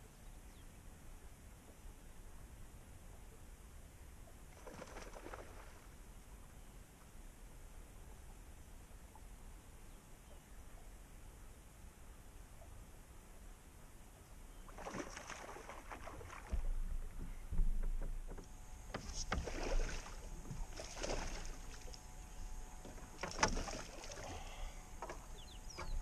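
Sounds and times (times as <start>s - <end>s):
fish splashing at surface: 14.8s - 16.6s, 19.3s - 21.9s
dull thumps on boat deck: 16.4s - 19.8s.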